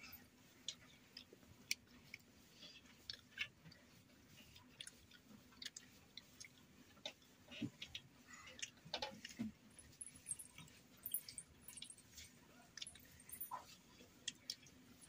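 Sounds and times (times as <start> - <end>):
faint chewing: 0.0 - 15.0
soft mouth and lip clicks: 0.6 - 9.4.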